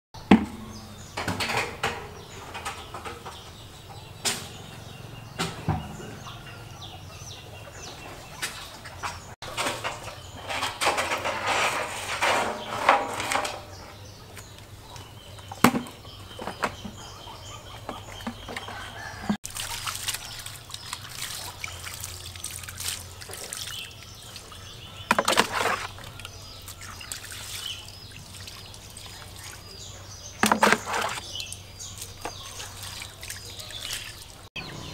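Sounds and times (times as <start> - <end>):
containers knocking: 0.2 - 3.4, 15.5 - 17.0, 25.0 - 26.1, 30.3 - 31.2
birds chirping: 0.2 - 34.9
water splashing and pouring: 19.4 - 34.5.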